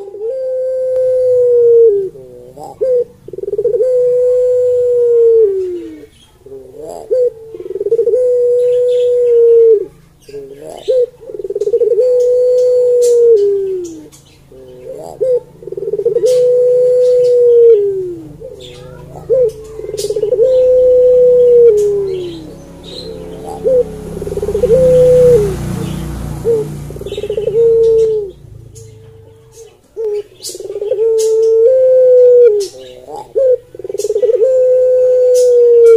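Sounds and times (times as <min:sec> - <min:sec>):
dove cooing: 0:00.0 - 0:35.9.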